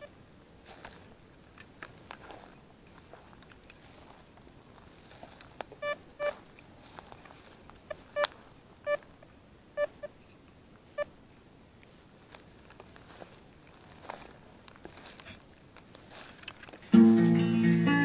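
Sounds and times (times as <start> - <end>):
metal detector short beeps: 5.8 - 6.3.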